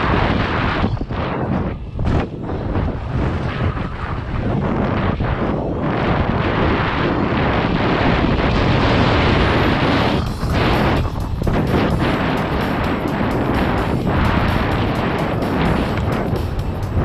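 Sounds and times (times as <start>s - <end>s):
wind buffeting microphone: 0.0s - 17.0s
bike knocking and rattling: 8.3s - 17.0s.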